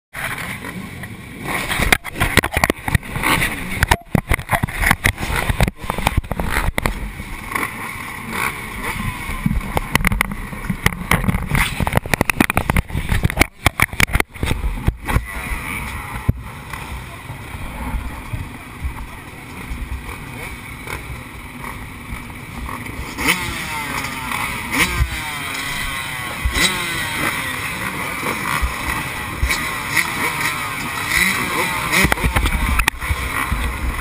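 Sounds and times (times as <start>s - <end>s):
motocross bike engines running: 0.2s - 34.0s
crackling and knocks: 1.6s - 7.7s, 9.3s - 15.2s.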